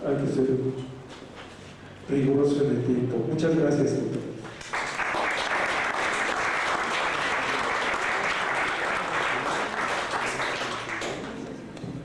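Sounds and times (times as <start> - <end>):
audience applauding: 4.5 - 11.5.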